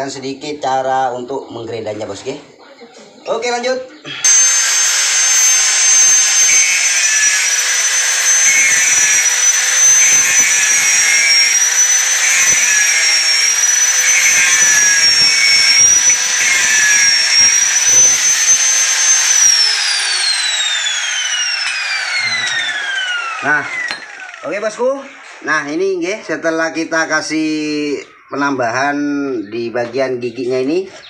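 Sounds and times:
angle grinder grinding metal: 4.1s - 25.5s.

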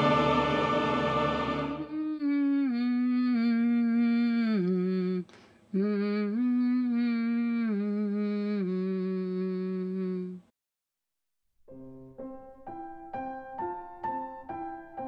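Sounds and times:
person humming: 1.8s - 10.5s
piano notes: 11.6s - 15.0s.

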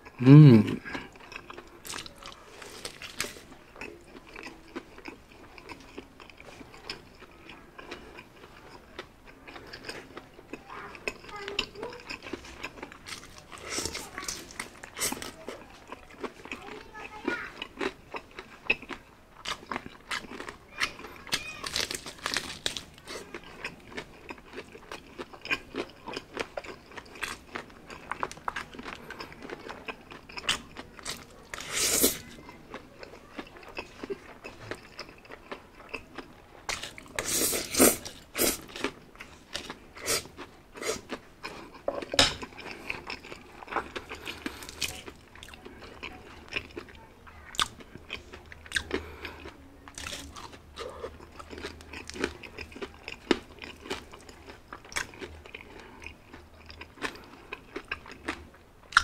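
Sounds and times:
crunching bites and chewing: 0.8s - 10.2s, 11.1s - 16.6s, 17.6s - 32.3s, 33.4s - 46.9s, 47.5s - 59.0s
slurping spaghetti: 31.0s - 32.4s, 36.7s - 41.8s.

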